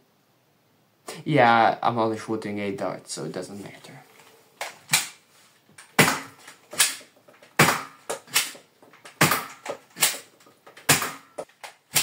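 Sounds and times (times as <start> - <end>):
toy dart blaster clacks: 7.6 - 12.0.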